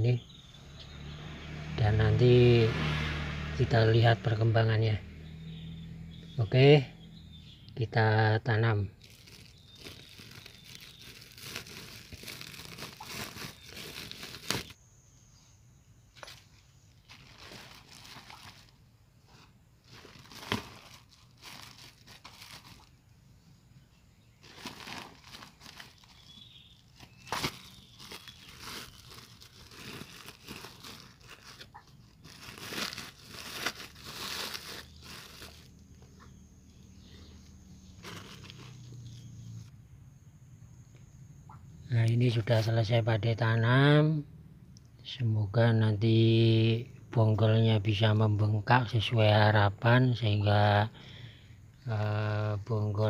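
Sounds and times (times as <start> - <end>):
plastic sack crinkling: 9.0 - 14.8, 17.0 - 23.0, 24.4 - 35.8, 37.9 - 39.4
sharp plastic crackle: 9.0 - 14.8, 16.2 - 18.8, 19.8 - 23.0, 24.4 - 35.9, 38.0 - 39.2
soil rustling: 9.0 - 14.8, 16.1 - 23.0, 24.2 - 36.4, 37.1 - 39.6.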